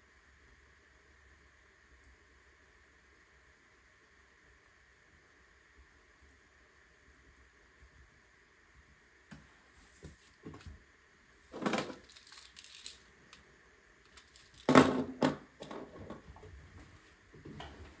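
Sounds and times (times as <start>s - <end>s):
plastic toy bricks clattering: 11.6s - 16.0s.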